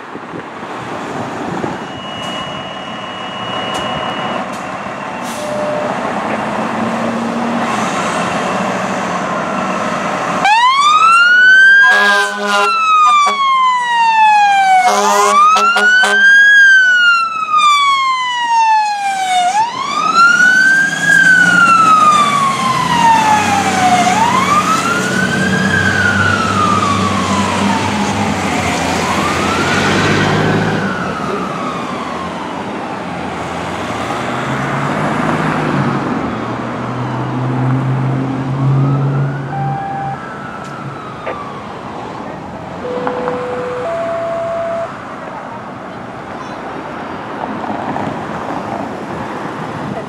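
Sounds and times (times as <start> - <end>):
engine and traffic rumble: 0.0 - 50.0
fire engine siren wailing: 1.6 - 45.8.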